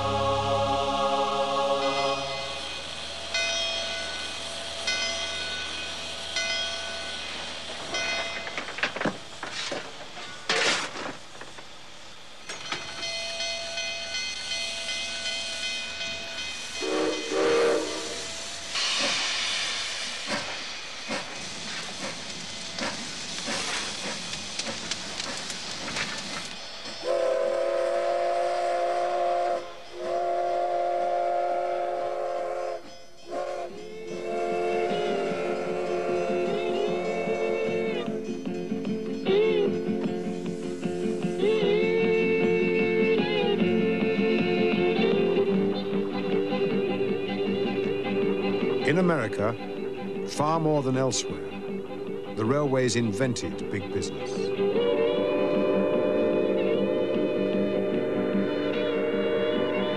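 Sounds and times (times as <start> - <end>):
steam hissing: 0.0 - 59.9
locomotive bell ringing: 1.8 - 8.7, 12.5 - 17.6, 32.8 - 40.0
locomotive exhaust chuffs: 14.4 - 59.9
steam whistle blowing: 16.6 - 19.8, 27.0 - 38.1, 54.5 - 59.9.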